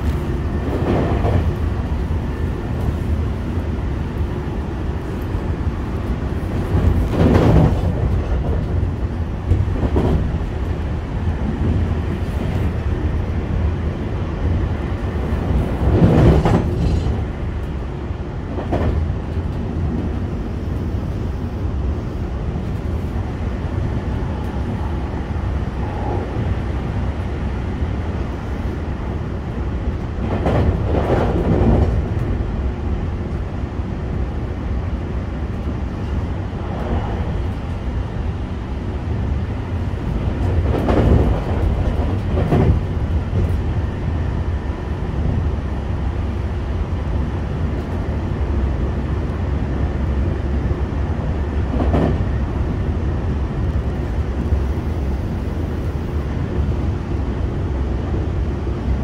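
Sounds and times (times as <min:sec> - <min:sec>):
track clattering: 0:00.0 - 0:20.4, 0:35.4 - 0:45.5
rumble of train wheels on rail: 0:00.0 - 0:59.0.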